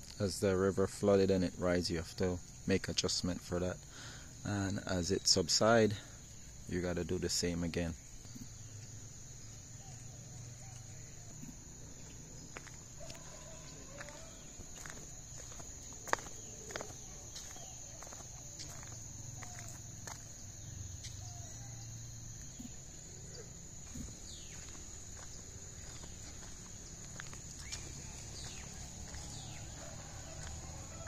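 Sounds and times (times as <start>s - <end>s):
high-pitched insect drone: 1.4s - 31.0s.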